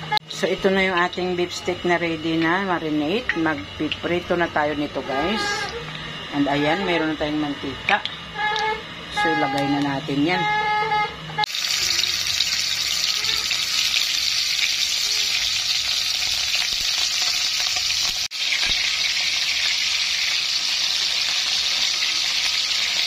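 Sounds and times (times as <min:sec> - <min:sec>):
beef frying in oil: 0:11.5 - 0:23.0.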